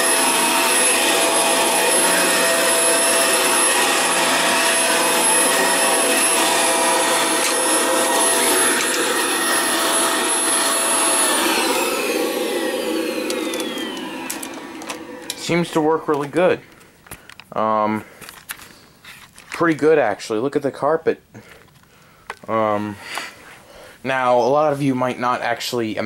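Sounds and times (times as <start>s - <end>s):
vacuum cleaner running on carpet: 0.0s - 16.4s.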